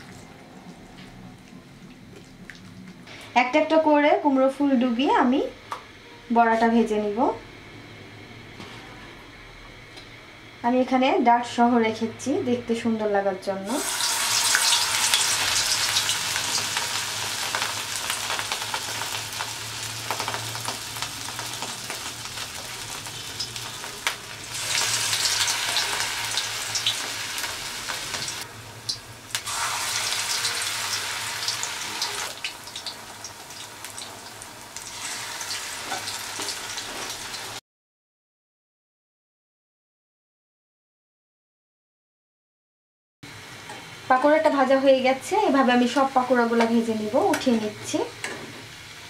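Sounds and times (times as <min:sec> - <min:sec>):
food deep-frying in oil: 0:13.6 - 0:37.6.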